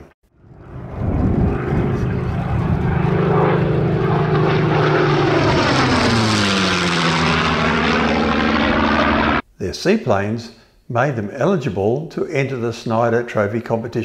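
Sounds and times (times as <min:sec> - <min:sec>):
propeller plane engine drone: 0:00.0 - 0:09.5.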